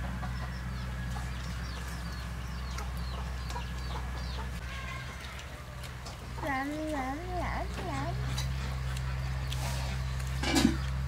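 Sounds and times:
chickens chirping: 0:00.0 - 0:11.0
steady low hum: 0:00.0 - 0:11.0.

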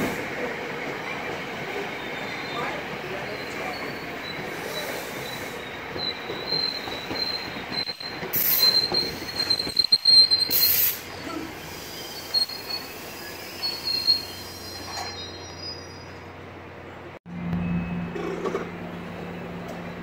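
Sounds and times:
passenger coaches rolling past: 0:00.0 - 0:20.0
train wheels squealing: 0:00.5 - 0:16.4.

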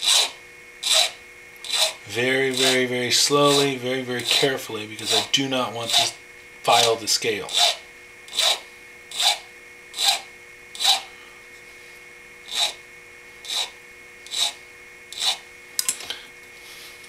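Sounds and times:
hand file rasping on metal: 0:00.0 - 0:11.1, 0:12.5 - 0:12.8, 0:13.4 - 0:15.4.

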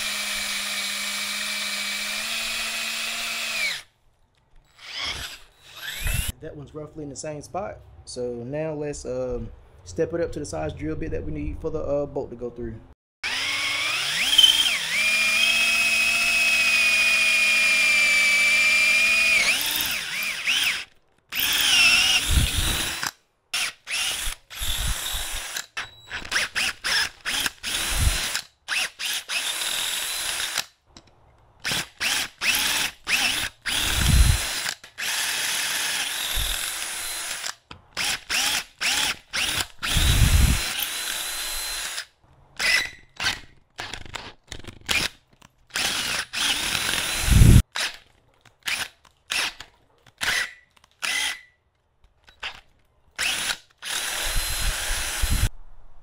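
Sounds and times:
power drill boring metal: 0:00.0 - 0:03.9, 0:04.7 - 0:06.3, 0:13.2 - 0:30.7, 0:31.6 - 0:43.4, 0:45.7 - 0:48.0, 0:48.6 - 0:49.6, 0:50.2 - 0:51.5, 0:53.2 - 0:55.5.

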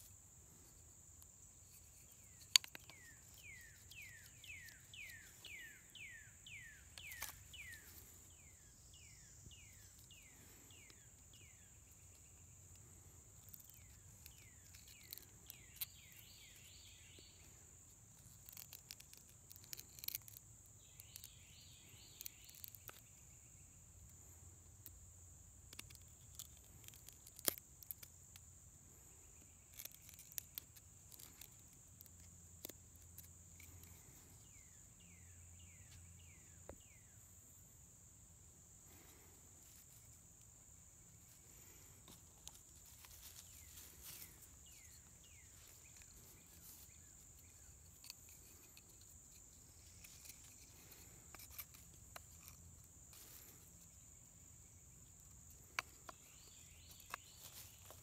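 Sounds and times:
insects droning: 0:00.0 - 0:58.0
knife cutting wood clicks: 0:01.2 - 0:05.6.

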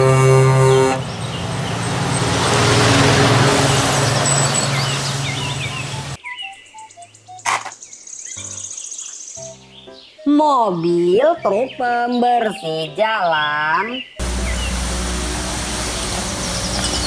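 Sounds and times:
truck driving past: 0:00.0 - 0:06.2, 0:14.2 - 0:17.0
truck horn blast: 0:00.0 - 0:06.2, 0:14.2 - 0:17.0
birds chirping: 0:00.0 - 0:17.0
sharp click: 0:07.4 - 0:07.8.

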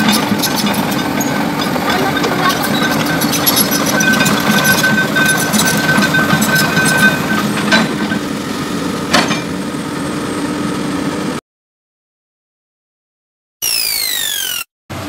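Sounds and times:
diesel engine running: 0:00.0 - 0:11.4
high whine: 0:13.6 - 0:14.7.

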